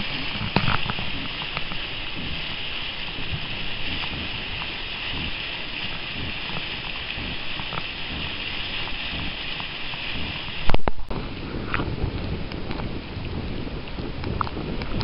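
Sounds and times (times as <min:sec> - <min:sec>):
steam vent rushing: 0:00.0 - 0:10.8
mud popping: 0:00.0 - 0:11.9
hissing steam and water: 0:00.0 - 0:15.0.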